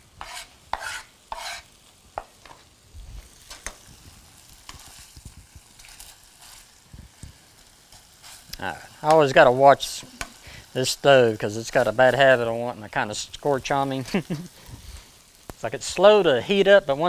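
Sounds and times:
chicken sizzling in a skillet: 0.0 - 17.0
knife on plastic cutting board: 0.2 - 1.7.

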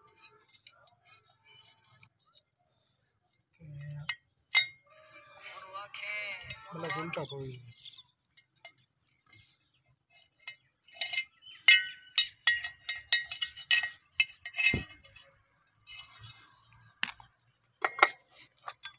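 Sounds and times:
cable connectors clinking on plastic: 6.4 - 18.9.

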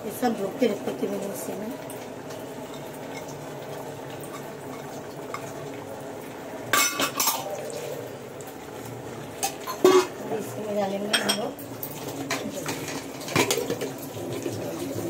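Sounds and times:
spoon clinking on metal pot: 9.4 - 10.1.

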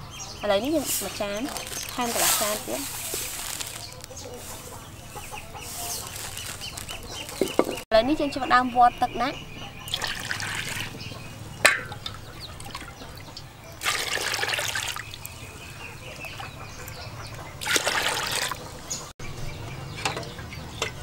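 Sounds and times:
water splashing into pot: 13.8 - 15.2, 17.6 - 18.6.

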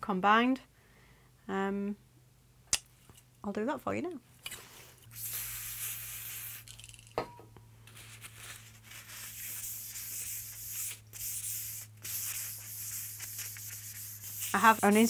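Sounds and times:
aerosol spray hiss: 5.1 - 6.8, 9.0 - 15.0
cloth rubbing on metal: 7.9 - 15.0.

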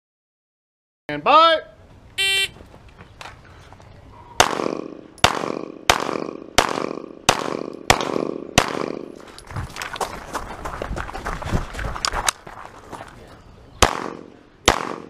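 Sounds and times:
pistol shots echoing: 4.4 - 9.1, 13.8 - 15.0.

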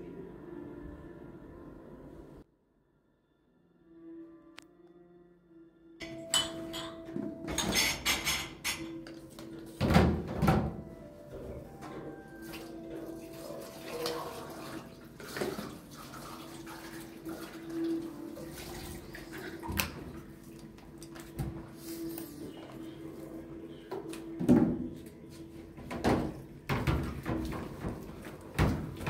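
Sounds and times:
objects clattering and knocking: 6.0 - 10.8, 25.8 - 29.0
water sounds: 12.4 - 21.1.

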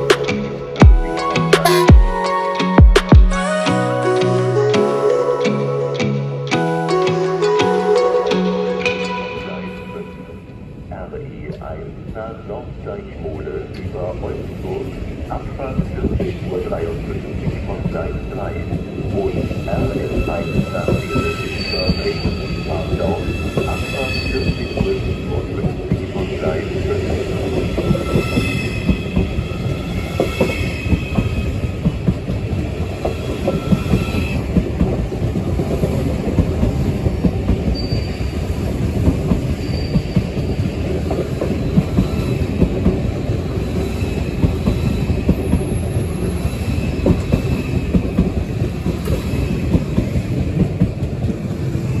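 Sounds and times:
low train rumble with clicks: 8.9 - 52.0
train brake and wheel squeal: 19.1 - 25.5, 27.2 - 31.7, 33.1 - 34.5, 37.7 - 38.6, 39.4 - 42.6.

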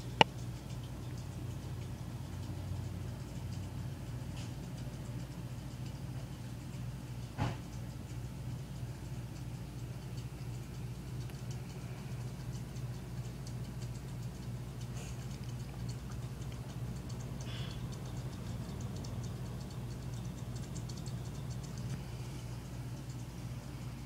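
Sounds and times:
aquarium pump humming: 0.0 - 24.0
faint regular ticks: 0.0 - 24.0.

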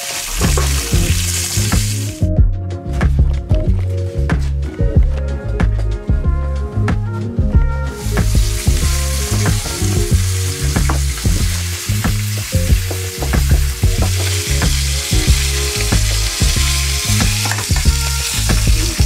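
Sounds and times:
food sizzling in a frying pan: 0.0 - 2.1, 8.0 - 19.0
background music with deep bass: 0.0 - 19.0.

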